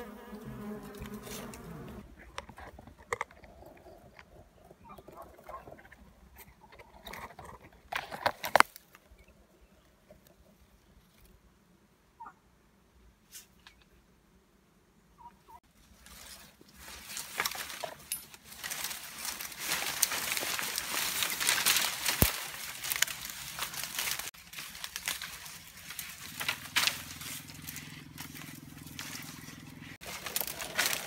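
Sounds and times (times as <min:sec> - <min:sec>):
twigs snapping and crackling: 0:08.0 - 0:09.1, 0:16.1 - 0:31.0
leaves and branches rustling: 0:15.6 - 0:31.0.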